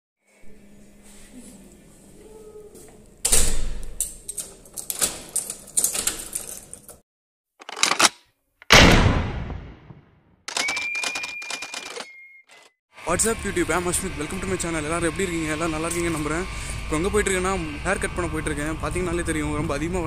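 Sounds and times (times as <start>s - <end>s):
door slamming shut: 3.3s - 3.8s
key turning in lock: 3.8s - 7.0s.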